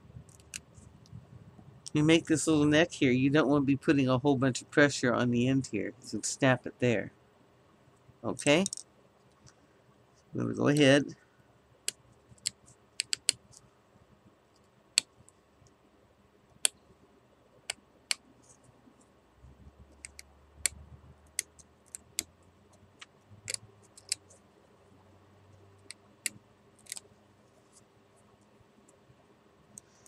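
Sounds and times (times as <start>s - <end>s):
knife whittling wood clicks: 25.9s - 27.0s.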